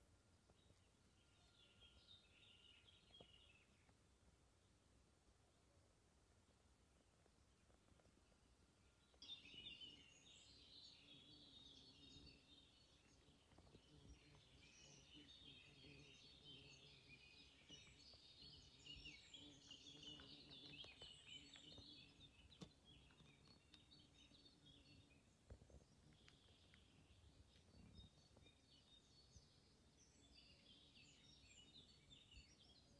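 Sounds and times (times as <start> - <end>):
birds singing and chirping: 9.0 - 32.9.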